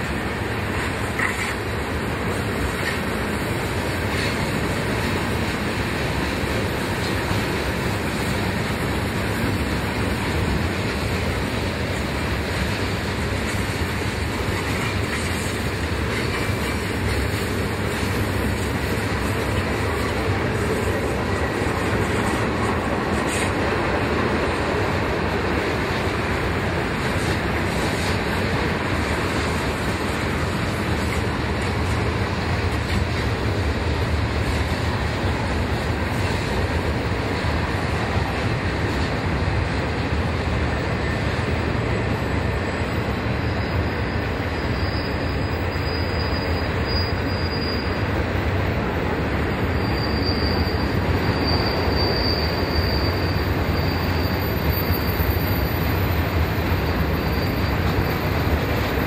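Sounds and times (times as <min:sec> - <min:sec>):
train cars rolling on rails: 0:00.0 - 0:59.0
high-pitched wheel squeal: 0:43.4 - 0:48.1, 0:49.6 - 0:58.9.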